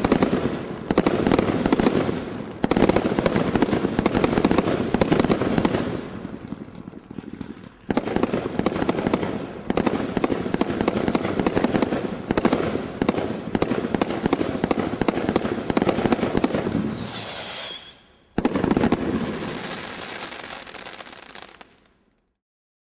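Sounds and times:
fireworks firing volleys: 0:00.0 - 0:22.2
crackling star bursts: 0:00.0 - 0:22.4.

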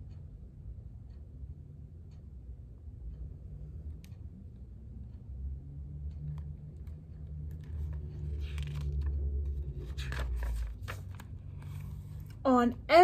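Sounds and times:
low rumble of book handling: 0:06.1 - 0:12.5
book pages flipping: 0:06.4 - 0:12.4.

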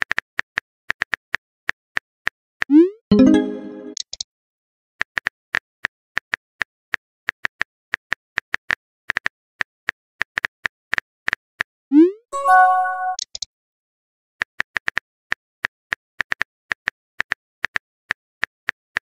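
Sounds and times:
held chime: 0:12.4 - 0:13.2.

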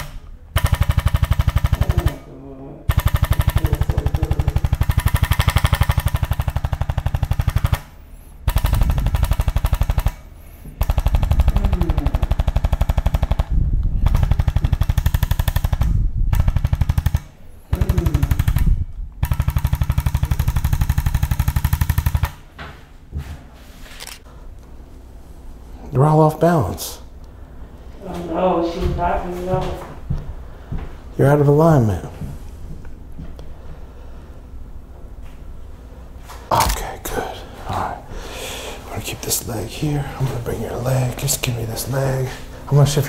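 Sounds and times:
massage gun rapid pulses: 0:00.0 - 0:02.2, 0:02.9 - 0:22.5.

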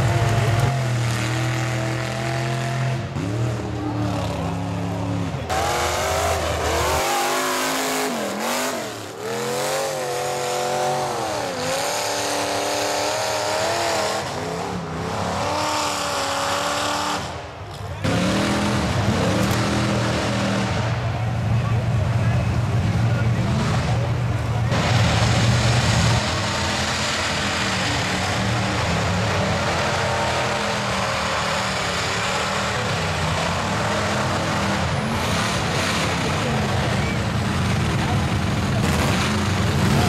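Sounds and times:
tires churning through mud: 0:00.0 - 0:40.0
truck engines revving: 0:00.0 - 0:40.0.

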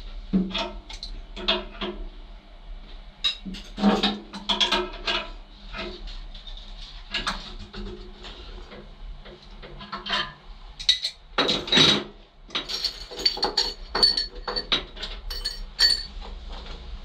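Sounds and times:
metal tools clinking: 0:12.5 - 0:16.1.

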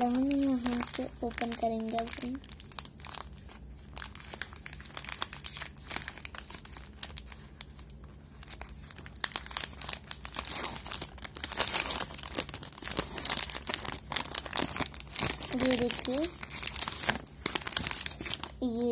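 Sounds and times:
foil wrapper crinkling and tearing: 0:00.0 - 0:18.9.

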